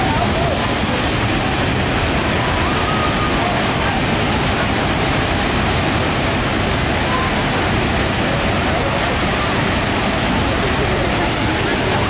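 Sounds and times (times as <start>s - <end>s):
waterfall rushing: 0.0s - 12.0s.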